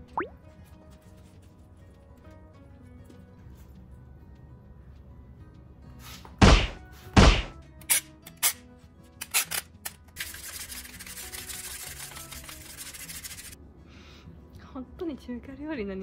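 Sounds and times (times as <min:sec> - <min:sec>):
quiet background music: 0:00.0 - 0:16.0
loud thunks: 0:06.4 - 0:07.6.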